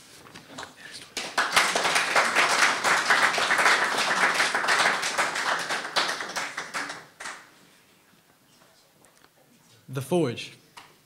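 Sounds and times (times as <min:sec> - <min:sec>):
audience applauding: 0:01.1 - 0:07.6.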